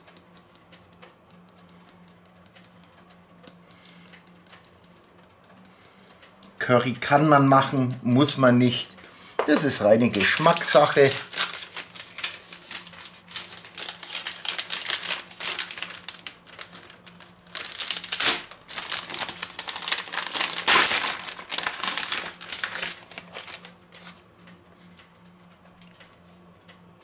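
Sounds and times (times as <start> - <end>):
plastic packets crinkling: 9.5 - 24.2.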